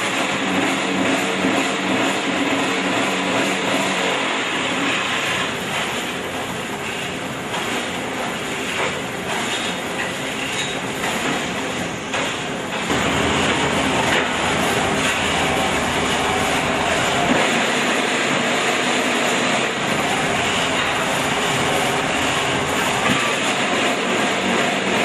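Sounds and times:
machinery clattering: 0:00.0 - 0:25.0
wheel loader engine rumble: 0:12.4 - 0:25.0.

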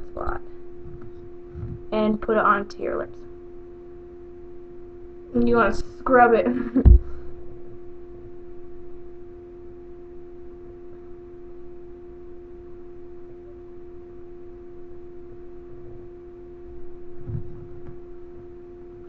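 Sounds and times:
steady pitched hum: 0:00.0 - 0:19.0
faint low rustling: 0:00.8 - 0:02.0, 0:16.7 - 0:18.6.

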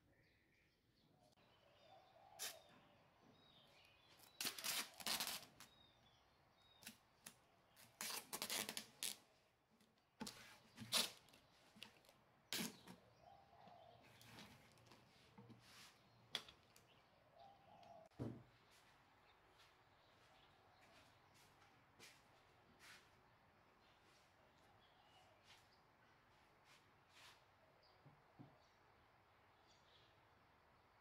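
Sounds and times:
plastic film crinkling: 0:04.2 - 0:05.7.

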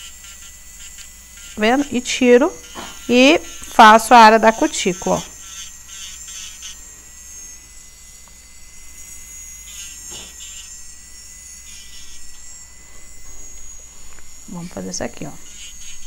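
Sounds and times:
drill bit grinding nail: 0:00.0 - 0:16.0
electric nail drill whining: 0:00.0 - 0:16.0.

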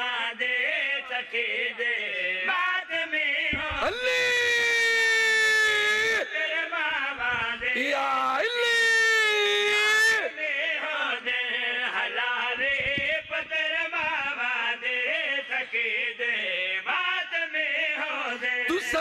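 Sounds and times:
man chanting into a microphone: 0:00.0 - 0:19.0.

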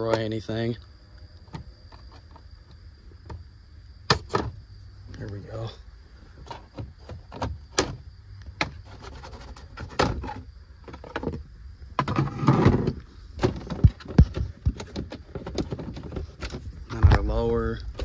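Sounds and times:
scraping rustle: 0:08.6 - 0:11.4, 0:12.0 - 0:18.0.

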